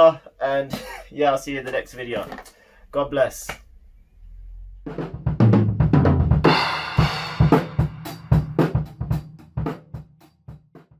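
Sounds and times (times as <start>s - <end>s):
drum kit fill: 4.9s - 10.9s
cymbal crash: 6.5s - 8.5s.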